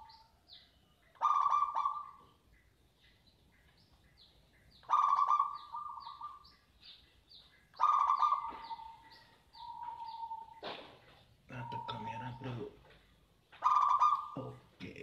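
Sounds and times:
dove cooing: 0:01.1 - 0:02.4, 0:04.8 - 0:06.6, 0:07.7 - 0:12.7, 0:13.6 - 0:14.7
bird chirping high and descending: 0:03.0 - 0:12.6, 0:13.5 - 0:14.6.

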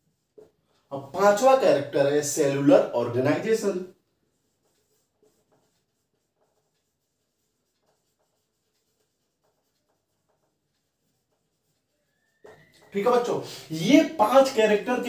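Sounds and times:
marker strokes on whiteboard: 0:00.0 - 0:15.0.

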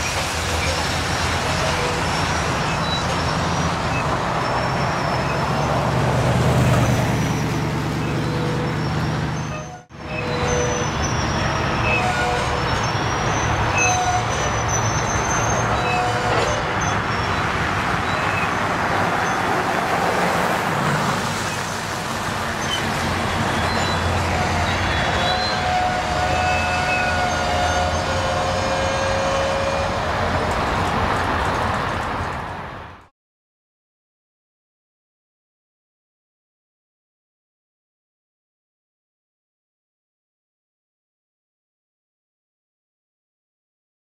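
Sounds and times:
train wheels rumbling on rails: 0:00.0 - 0:33.1
wheels squealing: 0:00.4 - 0:06.0, 0:06.6 - 0:19.6, 0:22.5 - 0:32.0.

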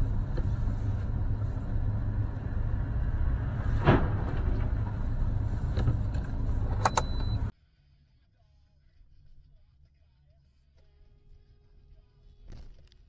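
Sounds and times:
rush of noise: 0:00.0 - 0:06.8
car engines and traffic rumble: 0:00.0 - 0:07.5.

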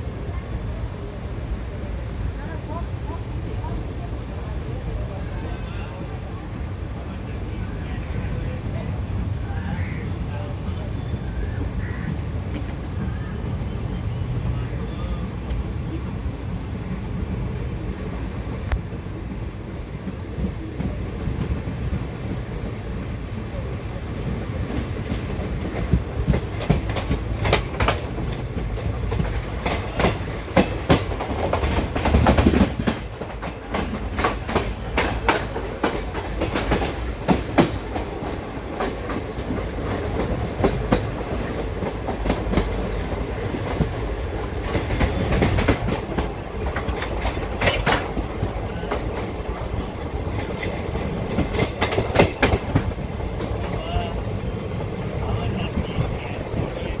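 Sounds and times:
train rumbling: 0:00.0 - 0:57.0
wheels clacking over rail joints: 0:24.6 - 0:57.0.

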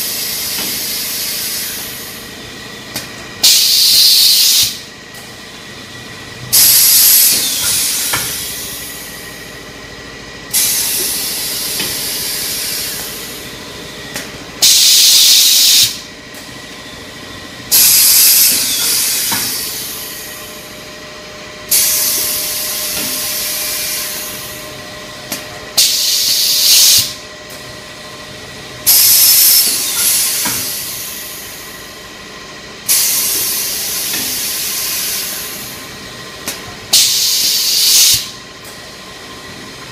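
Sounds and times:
compressed air hiss: 0:03.4 - 0:04.8, 0:10.5 - 0:13.2, 0:14.6 - 0:16.0, 0:25.8 - 0:27.2, 0:37.0 - 0:38.3.

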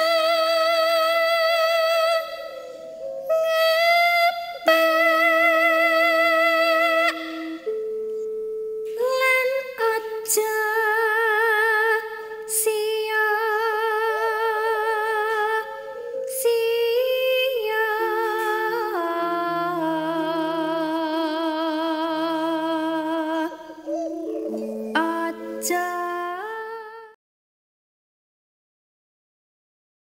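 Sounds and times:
slow voice-like melody with vibrato: 0:00.0 - 0:27.2.

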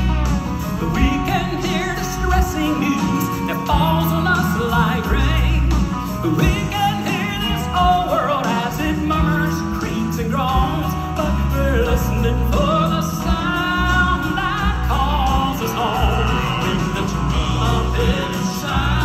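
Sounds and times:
male vocal quartet singing gospel: 0:00.0 - 0:19.0
piano and band accompaniment: 0:00.0 - 0:19.0.

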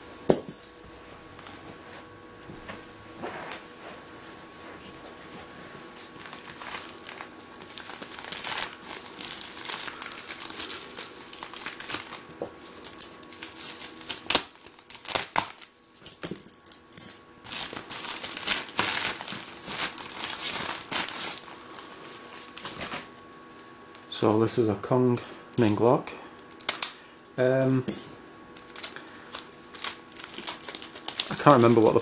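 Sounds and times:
plastic bag crinkling: 0:06.0 - 0:24.2, 0:28.6 - 0:32.0.

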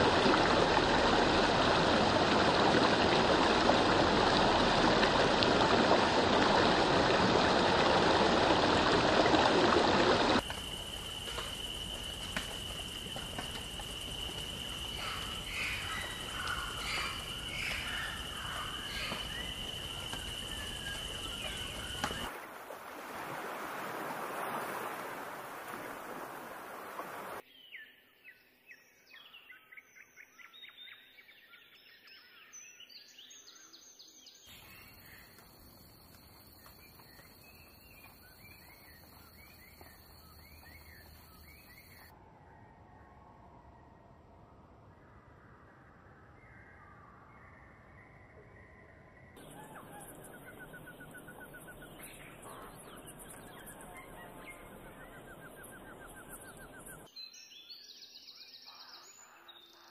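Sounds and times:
stream rushing over rocks: 0:00.0 - 0:17.9, 0:20.2 - 0:27.4
bird chirps: 0:13.8 - 0:22.3, 0:47.4 - 0:59.9.

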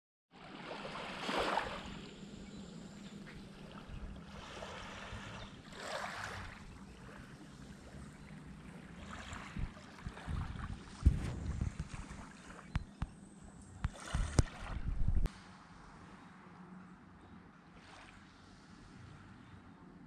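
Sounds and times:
small waves washing on sand: 0:00.4 - 0:02.1, 0:03.6 - 0:08.1
faint steady hum: 0:00.4 - 0:20.0
low rumble: 0:09.5 - 0:15.4.

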